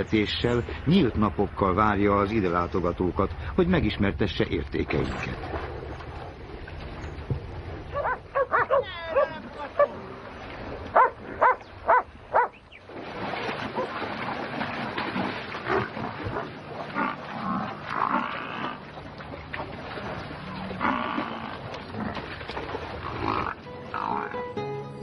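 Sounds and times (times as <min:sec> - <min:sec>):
dog barking: 0:07.9 - 0:09.3, 0:11.0 - 0:12.6
splashing in mud: 0:09.7 - 0:23.6.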